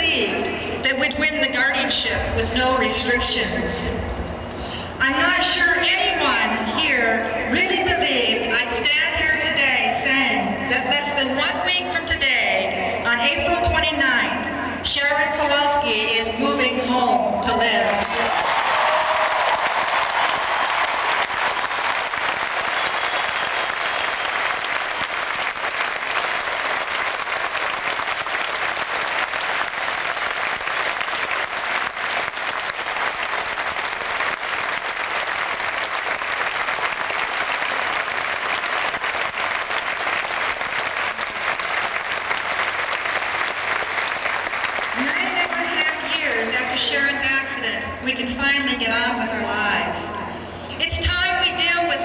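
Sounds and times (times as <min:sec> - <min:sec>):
crowd applauding: 0:17.9 - 0:46.5.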